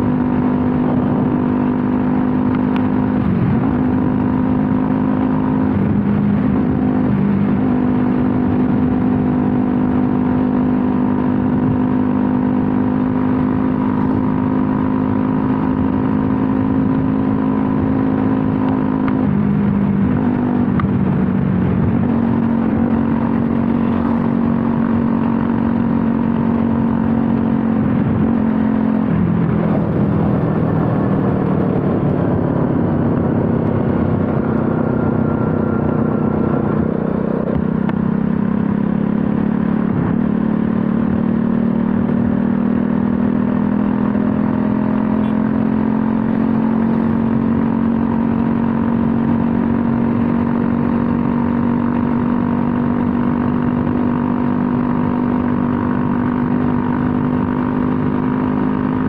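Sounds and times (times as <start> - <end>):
motorcycle engine running: 0.0 - 59.0
road noise: 0.0 - 59.0
wind noise: 15.1 - 43.8.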